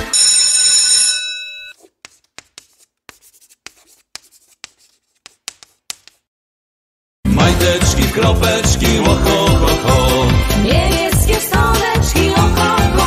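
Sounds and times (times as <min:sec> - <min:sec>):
chalk scratching on blackboard: 0:01.7 - 0:06.3.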